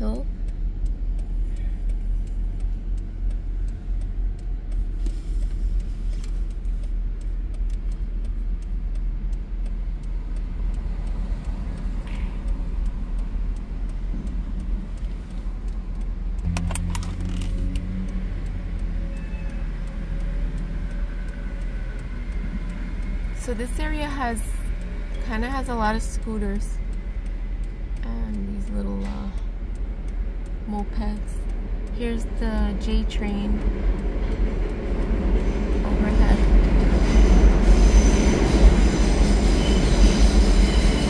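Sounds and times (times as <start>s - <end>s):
car idling: 0.0s - 18.9s
city traffic: 0.0s - 41.0s
deeper engine hum: 0.0s - 41.0s
sharp clicks: 0.4s - 23.1s.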